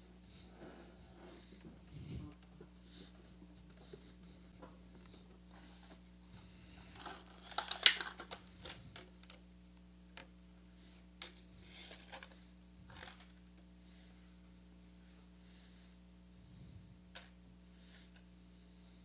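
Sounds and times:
small plastic and metal parts rattling: 6.9s - 9.4s.

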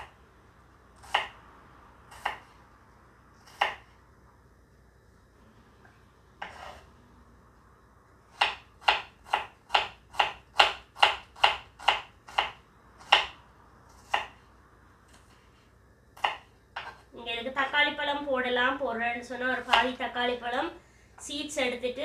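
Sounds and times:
knife slicing onion on board: 1.0s - 1.4s, 2.1s - 2.5s, 3.4s - 3.9s, 6.4s - 6.8s, 8.3s - 14.4s, 16.2s - 17.1s, 19.5s - 20.1s.

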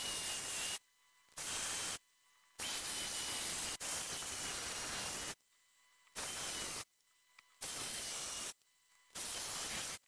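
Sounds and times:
hot-air styler blowing air: 0.0s - 0.8s.

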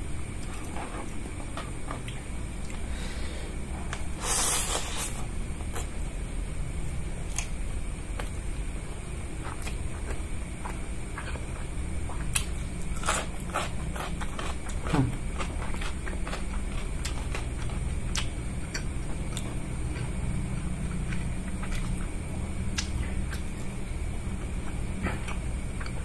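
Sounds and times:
wet chewing: 9.4s - 23.5s.

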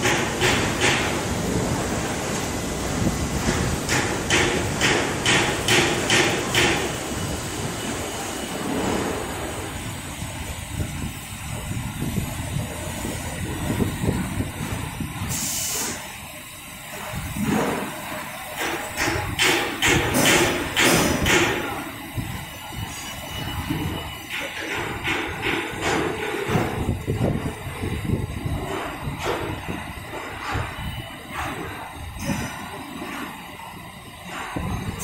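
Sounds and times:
welding machine noise: 0.0s - 35.0s
air hiss: 8.3s - 23.1s.

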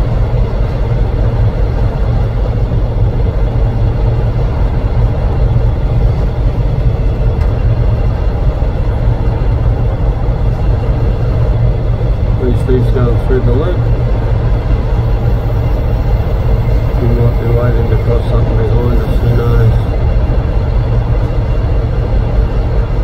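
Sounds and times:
freight train rolling past: 0.0s - 23.0s.

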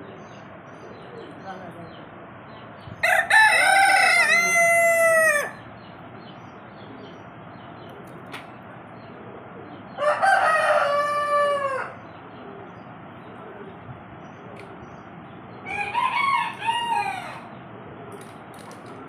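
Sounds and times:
rooster crowing: 3.0s - 5.6s, 10.0s - 12.0s, 15.6s - 17.6s.

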